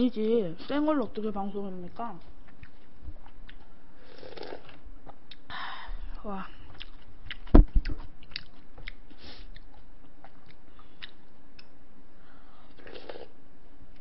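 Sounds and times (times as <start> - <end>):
person chewing: 2.4 - 5.5, 6.6 - 11.8.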